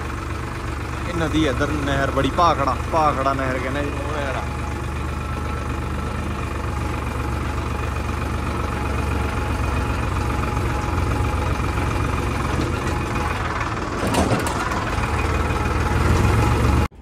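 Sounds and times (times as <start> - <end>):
tractor diesel engine running: 0.0 - 17.0
brief rattle: 12.4 - 15.3.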